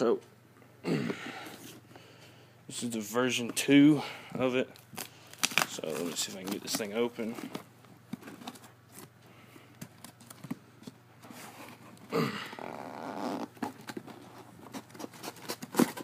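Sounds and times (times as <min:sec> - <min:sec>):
cardboard rubbing and scraping: 0:12.6 - 0:16.0.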